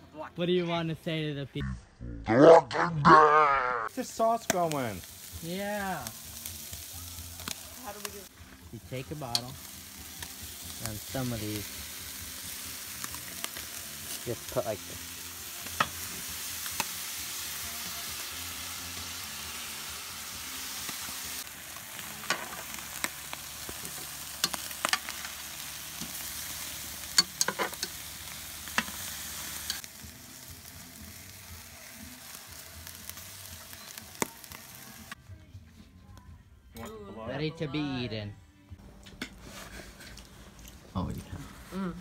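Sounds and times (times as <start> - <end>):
meat sizzling on a grill: 3.8 - 35.2
metal tongs clicking on a grate: 9.3 - 9.5, 23.8 - 25.3, 27.1 - 28.0, 28.7 - 29.0.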